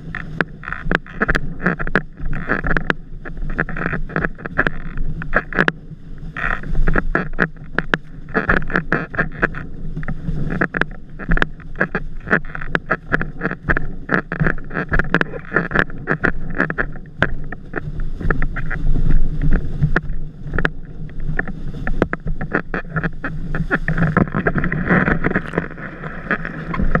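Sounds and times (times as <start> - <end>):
board hull slapping water: 0.0 - 27.0
wind buffeting microphone: 13.3 - 27.0.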